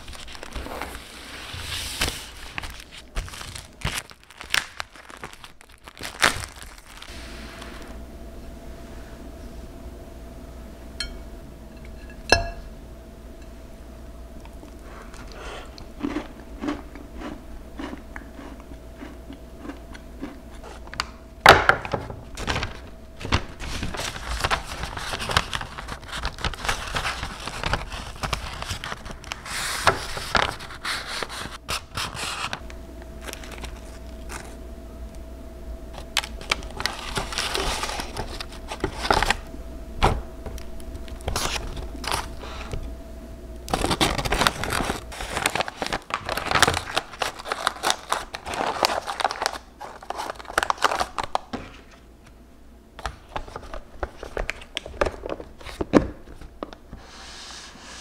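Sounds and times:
baking paper crinkling: 0.0 - 8.0, 22.3 - 32.6, 33.2 - 34.6, 36.0 - 39.4, 41.0 - 42.7, 43.7 - 52.0, 53.0 - 58.0
faint steady hum: 0.0 - 58.0.

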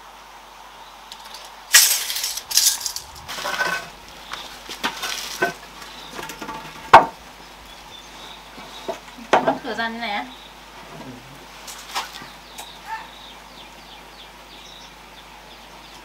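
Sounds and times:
wooden planks scraping and clattering: 1.2 - 7.2
wooden planks knocking: 4.7 - 7.2.

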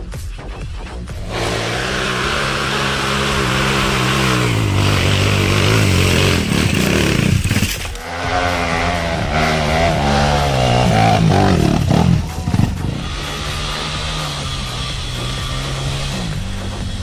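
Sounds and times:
dirt bike engine revving: 1.0 - 17.0.

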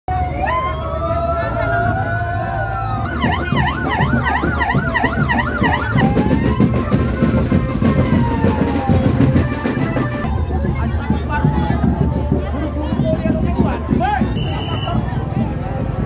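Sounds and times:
electronic siren wailing and yelping: 0.2 - 9.5.

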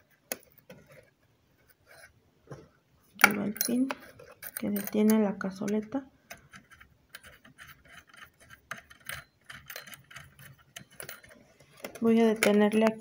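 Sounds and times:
small metallic clicks: 3.2 - 13.0.

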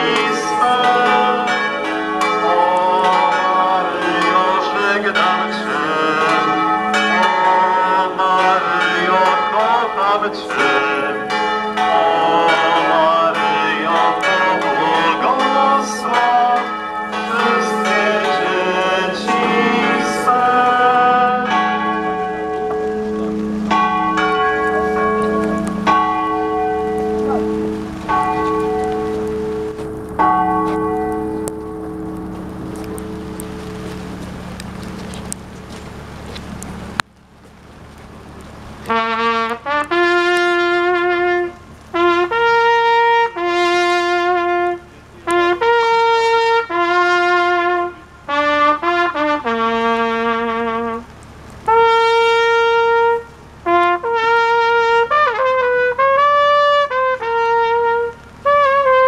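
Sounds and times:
steady hum from bells: 0.0 - 35.1
church bells pealing: 0.0 - 37.0.

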